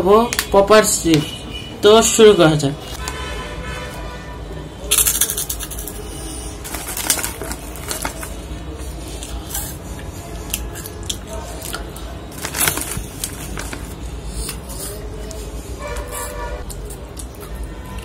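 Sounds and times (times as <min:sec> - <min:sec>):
snack bag crinkling: 0:04.9 - 0:06.0, 0:06.6 - 0:09.7, 0:10.6 - 0:15.4
chewing crisp snack: 0:04.9 - 0:18.0.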